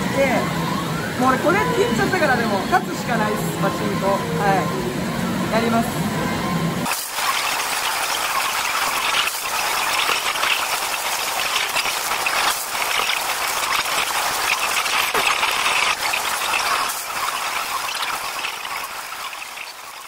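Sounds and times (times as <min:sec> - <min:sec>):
rattle of pachinko machines: 0:06.8 - 0:20.0.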